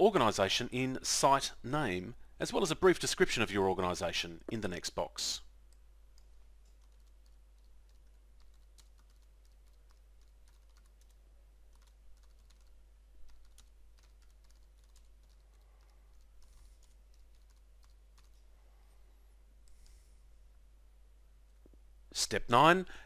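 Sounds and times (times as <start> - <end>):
keyboard typing: 5.7 - 18.4.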